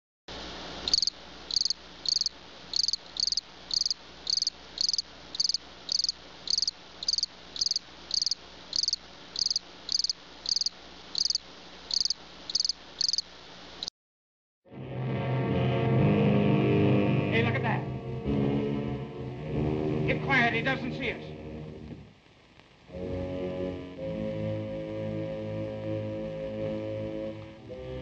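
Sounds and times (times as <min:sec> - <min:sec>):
constant hiss: 0:00.3 - 0:13.9, 0:19.6 - 0:28.0
insect chirping: 0:00.8 - 0:13.9.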